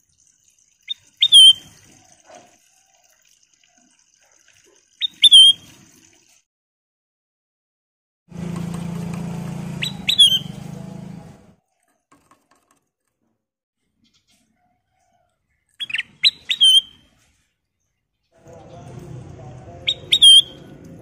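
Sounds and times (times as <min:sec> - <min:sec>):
bird chirping calls: 0:00.9 - 0:02.1, 0:05.0 - 0:05.6, 0:09.8 - 0:10.6, 0:15.7 - 0:17.3, 0:19.8 - 0:20.9.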